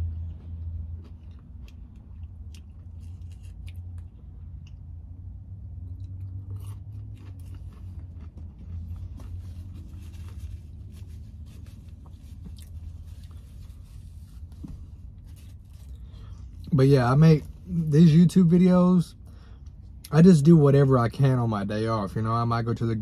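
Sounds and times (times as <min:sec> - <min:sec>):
man chewing: 0:00.0 - 0:16.7.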